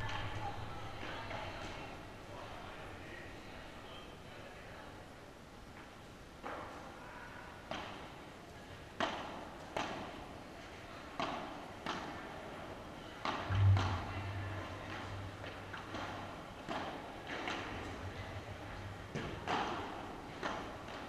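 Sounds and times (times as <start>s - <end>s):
low hum: 0.0s - 2.2s, 13.5s - 16.1s
loud thud: 13.5s - 15.6s.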